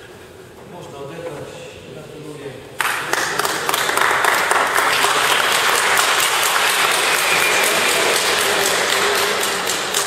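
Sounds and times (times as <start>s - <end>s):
crowd applauding: 2.8s - 10.0s.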